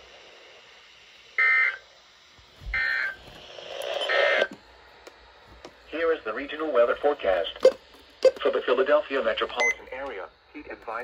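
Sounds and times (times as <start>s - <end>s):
data burst tones: 2.8s - 3.2s.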